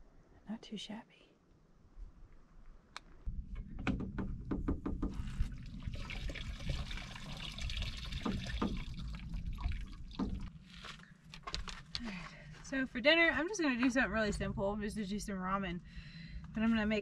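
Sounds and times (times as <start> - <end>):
water running into a bottle: 5.4 - 10.5.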